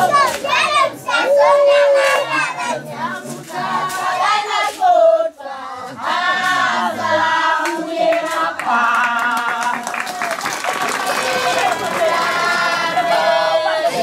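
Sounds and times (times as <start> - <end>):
women and children singing: 0.0 - 14.0
hand claps: 0.1 - 0.8, 7.6 - 12.8.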